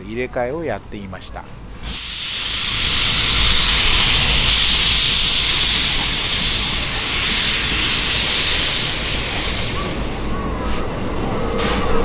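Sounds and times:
steam locomotive hissing: 1.7 - 11.0.

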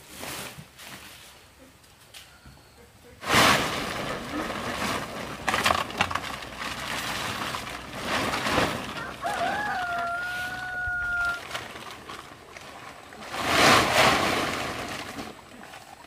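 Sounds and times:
plastic tarp crinkling and rustling: 0.0 - 1.4, 3.2 - 16.0
rooster crowing: 8.9 - 11.5.

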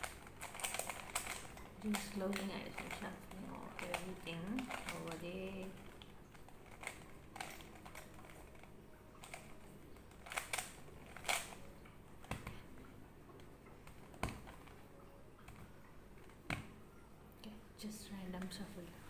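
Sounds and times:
puzzle cube clicking: 0.0 - 12.6.

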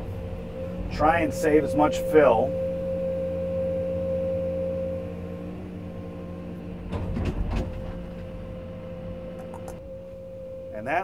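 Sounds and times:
diesel engine humming: 0.0 - 11.0
clatter of knocks: 6.8 - 8.4.

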